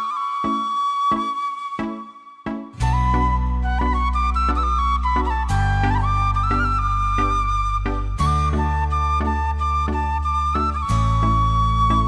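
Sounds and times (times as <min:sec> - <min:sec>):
background music with bass: 0:02.5 - 0:12.0.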